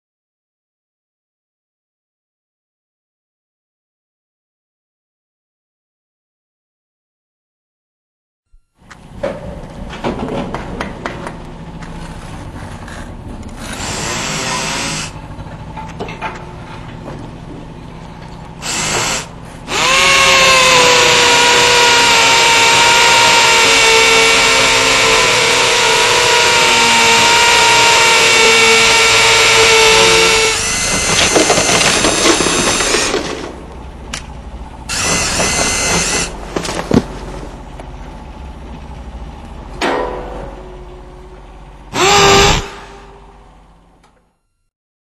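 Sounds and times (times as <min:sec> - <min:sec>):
power drill running: 0:13.5 - 0:15.2, 0:18.6 - 0:33.4, 0:34.9 - 0:37.0, 0:41.9 - 0:43.4
clicks and knocks handling drill: 0:34.9 - 0:37.2.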